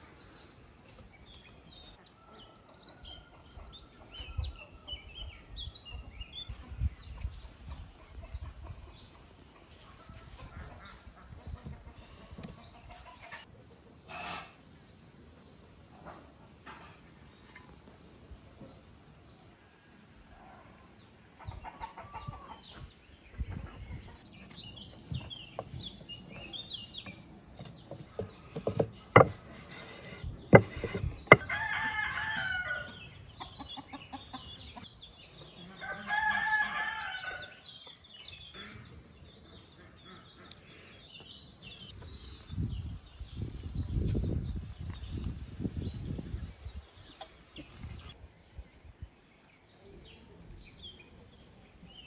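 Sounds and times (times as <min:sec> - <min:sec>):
small birds chirping: 0:21.0 - 0:31.8, 0:32.9 - 0:52.0
sharp knocks: 0:27.9 - 0:31.5
rooster crowing: 0:31.4 - 0:33.0, 0:35.8 - 0:37.5.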